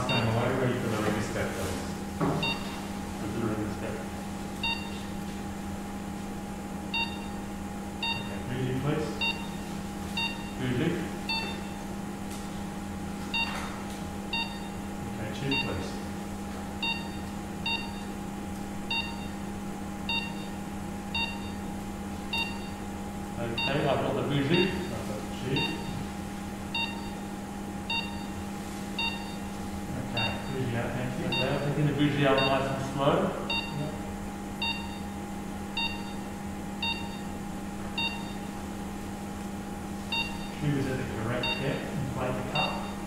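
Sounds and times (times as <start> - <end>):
patient monitor beeps: 0.0 - 1.7, 2.4 - 2.9, 4.6 - 5.1, 6.9 - 8.5, 9.1 - 11.8, 13.3 - 13.7, 14.3 - 16.1, 16.8 - 18.1, 18.9 - 19.4, 20.1 - 21.7, 22.3 - 22.8, 23.5 - 26.1, 26.7 - 34.0, 34.6 - 35.1, 35.8 - 37.4, 38.0 - 38.6, 40.1 - 40.7, 41.4 - 43.0
equipment hum: 0.0 - 43.0.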